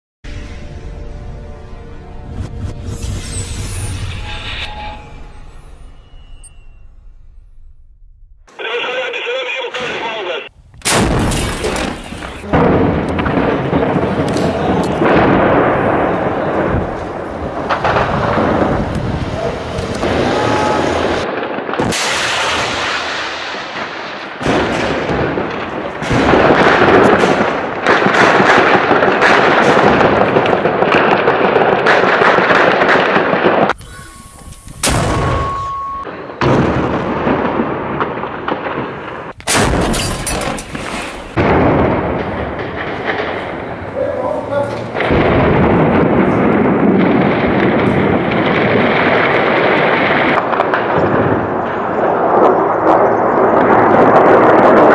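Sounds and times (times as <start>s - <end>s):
heavy blasts: 0.3s - 54.9s
men's voices: 8.5s - 10.5s, 14.1s - 15.2s, 43.9s - 45.0s
gunfire: 10.8s - 19.0s, 19.7s - 33.8s, 34.8s - 54.9s
short steady tones: 33.8s - 36.4s.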